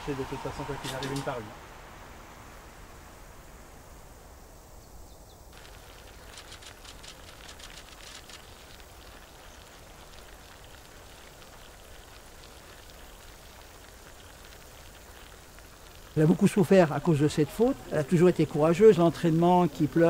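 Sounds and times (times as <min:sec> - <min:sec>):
bicycle tyres hissing on asphalt: 0:00.0 - 0:20.0
rapid light ticks: 0:05.5 - 0:16.4.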